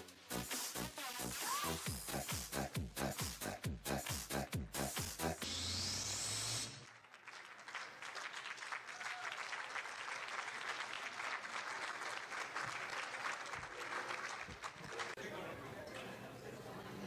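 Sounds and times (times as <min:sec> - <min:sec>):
electronic dance music: 0:00.0 - 0:06.8
audience applauding: 0:06.8 - 0:15.2.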